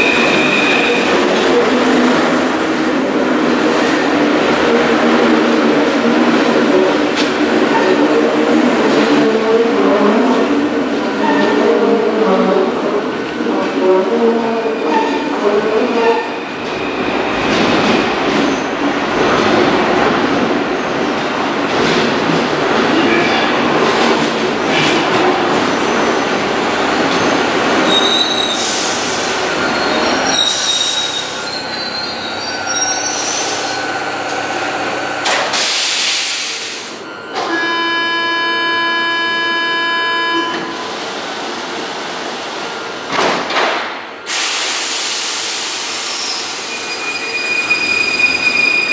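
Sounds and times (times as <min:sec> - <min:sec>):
train wheels rumbling on rail: 0:00.0 - 0:37.6, 0:40.5 - 0:48.9
wheel and brake squeals: 0:27.1 - 0:28.7, 0:29.5 - 0:33.9, 0:46.1 - 0:48.9
air hiss: 0:35.5 - 0:37.0, 0:44.3 - 0:46.7.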